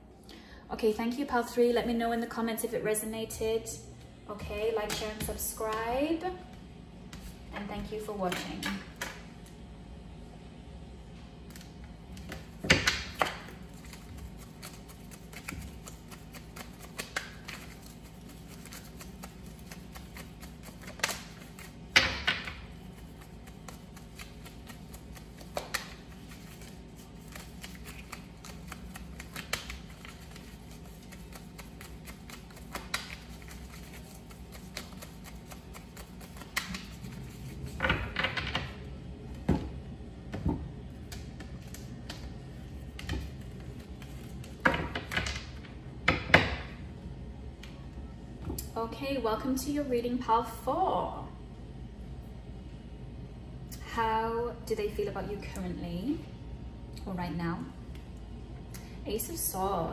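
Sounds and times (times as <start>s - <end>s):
faint steady hum: 0.0s - 59.9s
cards being shuffled: 11.4s - 38.4s, 41.0s - 45.3s.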